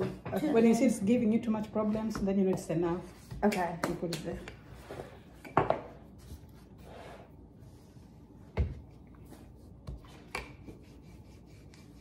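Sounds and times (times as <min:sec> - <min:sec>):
rolling pin rubbing on dough: 0:04.7 - 0:08.2, 0:09.0 - 0:12.0.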